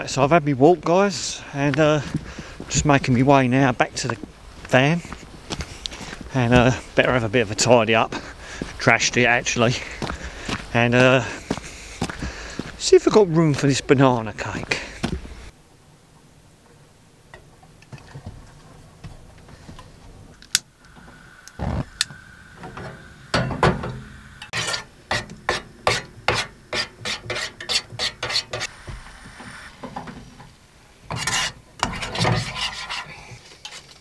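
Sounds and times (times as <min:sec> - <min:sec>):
spoon stirring in metal saucepan: 0:31.1 - 0:33.1.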